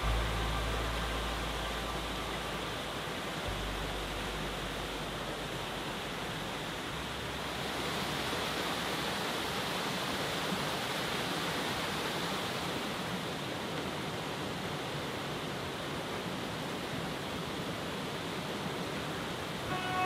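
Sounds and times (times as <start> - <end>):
creek water rushing over cascade: 0.0 - 20.0.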